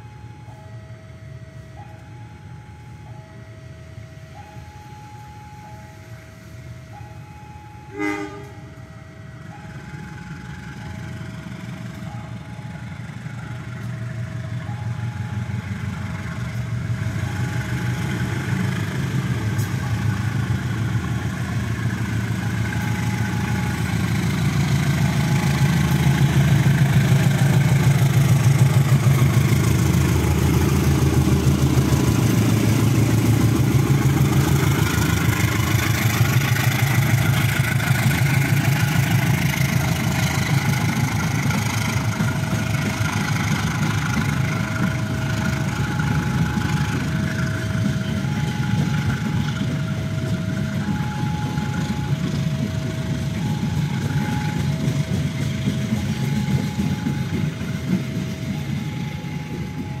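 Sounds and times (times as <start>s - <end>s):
locomotive engine and wheel rumble: 0.0s - 60.0s
two-tone warning signal: 0.0s - 60.0s
train horn blast: 7.8s - 9.0s.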